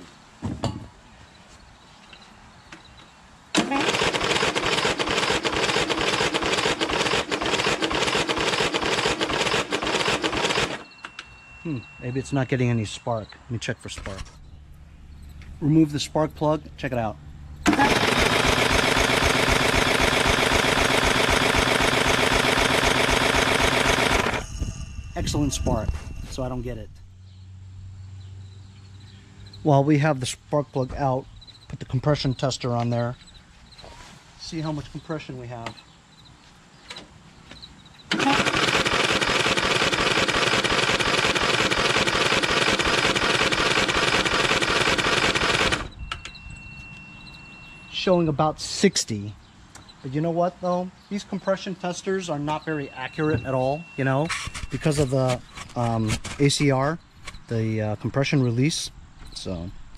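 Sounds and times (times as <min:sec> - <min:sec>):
electric starter cranking engine: 0:03.6 - 0:11.4, 0:17.6 - 0:25.6, 0:38.1 - 0:46.4.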